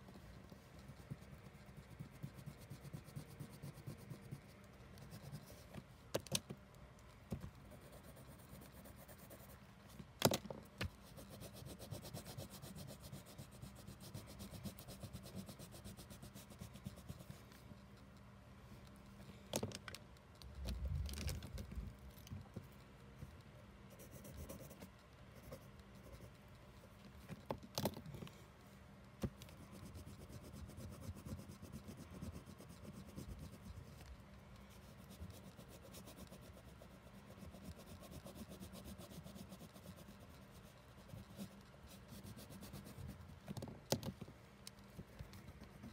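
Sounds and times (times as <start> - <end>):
colouring pencil scratching on paper: 11.0 - 17.4, 24.0 - 26.4, 29.7 - 34.0, 34.7 - 43.2.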